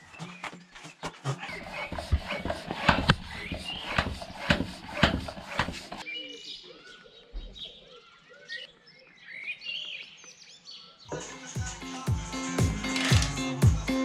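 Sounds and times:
floor pump strokes with air rush: 0:00.8 - 0:06.0.

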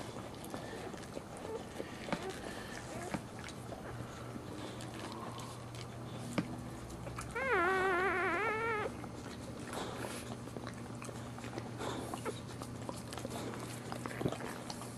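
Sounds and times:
puppy crying high-pitched: 0:07.3 - 0:09.0.

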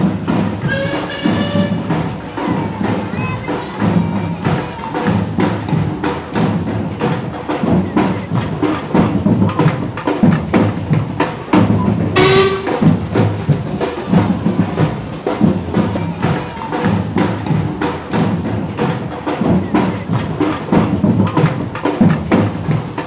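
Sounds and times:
band music with drum beat: 0:00.0 - 0:23.0
steam whistle blast: 0:00.6 - 0:02.4, 0:11.6 - 0:15.8.

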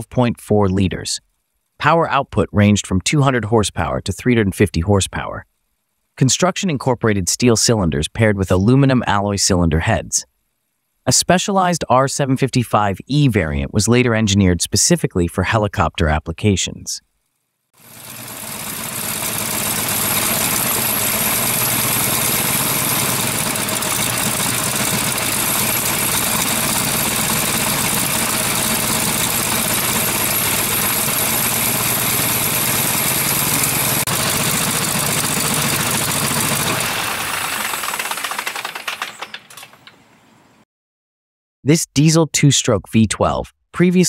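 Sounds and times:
radial aircraft engine running: 0:17.8 - 0:39.3.

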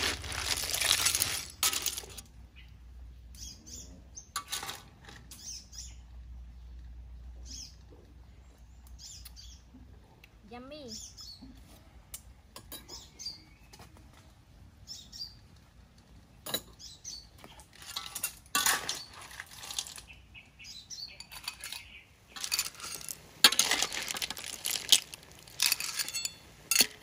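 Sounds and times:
clam shells clinking: 0:00.0 - 0:02.2, 0:21.2 - 0:27.0
metal spatula scraping wok: 0:00.0 - 0:02.2, 0:17.8 - 0:20.0, 0:21.2 - 0:27.0.

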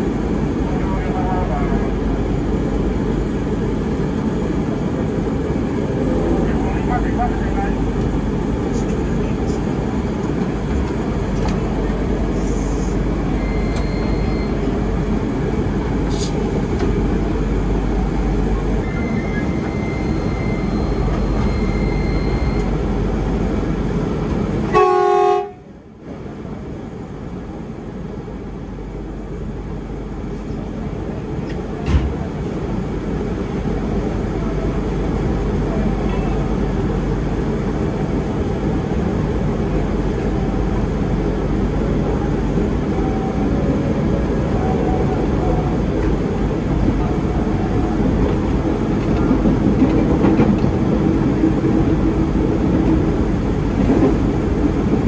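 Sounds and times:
train cabin noise: 0:00.0 - 0:55.0
train horn: 0:24.7 - 0:25.7.

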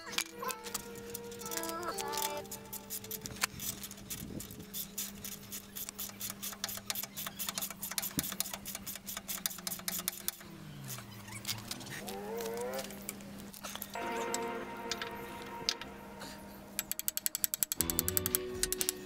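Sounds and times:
ratchet wrench clicking: 0:05.8 - 0:10.5, 0:16.8 - 0:19.0.

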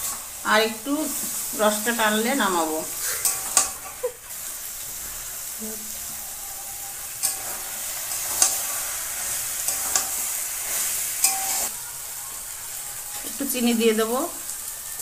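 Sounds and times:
curry sizzling in a pan: 0:00.0 - 0:15.0
spatula scraping pan: 0:01.0 - 0:11.7.

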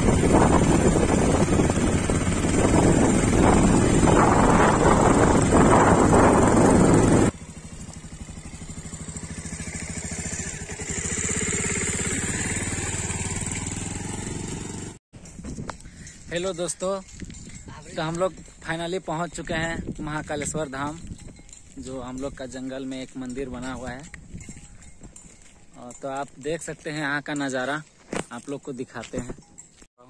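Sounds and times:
wind buffeting microphone: 0:00.0 - 0:07.3, 0:17.0 - 0:18.6, 0:19.2 - 0:22.5, 0:23.4 - 0:25.3
motorcycle engine running: 0:00.0 - 0:16.1.

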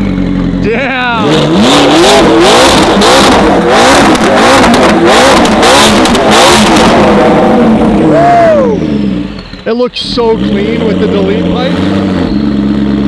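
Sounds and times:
exhaust pops: 0:00.0 - 0:08.2
car engine revving: 0:00.0 - 0:13.0.

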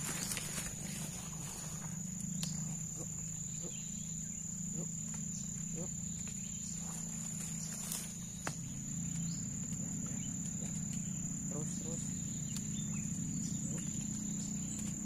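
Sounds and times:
high-pitched insect trill: 0:00.0 - 0:15.0
low steady hum: 0:00.0 - 0:15.0.

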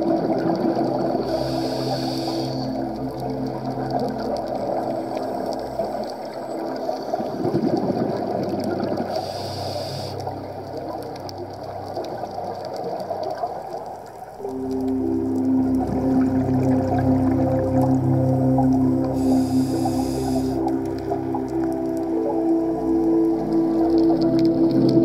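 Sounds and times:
faint crackling clicks: 0:00.0 - 0:25.0
underwater water noise: 0:00.0 - 0:25.0
regulator inhale hiss: 0:01.3 - 0:02.8, 0:09.1 - 0:10.3, 0:19.2 - 0:20.7.

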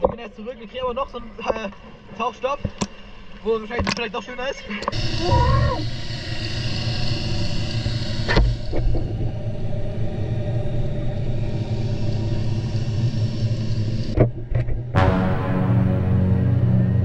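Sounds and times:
muffled underwater drone: 0:04.7 - 0:17.0.

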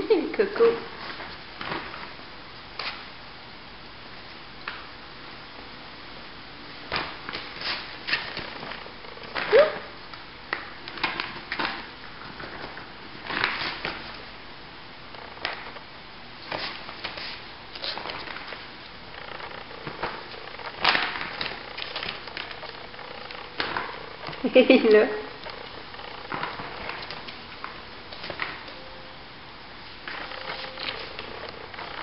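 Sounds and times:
ferret scrambling: 0:16.4 - 0:28.9, 0:29.9 - 0:32.0.

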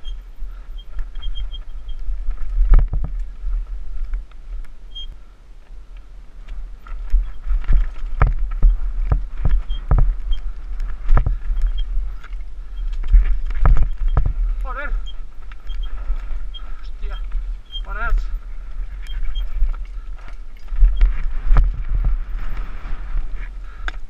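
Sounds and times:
wind rumble on microphone: 0:00.0 - 0:24.0
bike knocks and rattles: 0:00.5 - 0:03.4, 0:06.8 - 0:17.8, 0:18.8 - 0:24.0.

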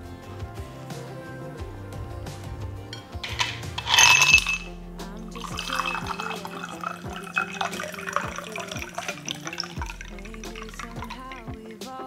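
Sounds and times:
background music: 0:00.0 - 0:12.0
ice cubes clattering into glass: 0:03.2 - 0:04.7, 0:05.3 - 0:11.7
tea pouring and splashing: 0:03.2 - 0:11.8.

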